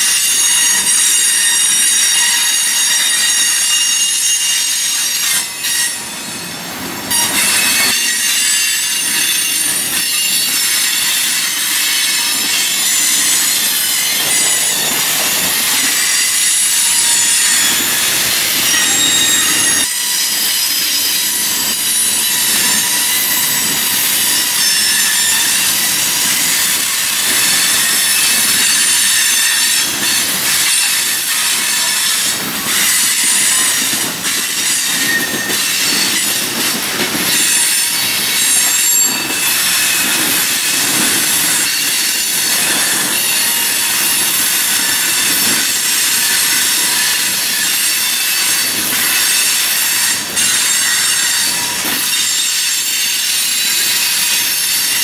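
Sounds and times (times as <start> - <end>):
high-pitched wheel squealing: 0.0 - 36.4
train wheels clattering on rails: 0.0 - 55.0.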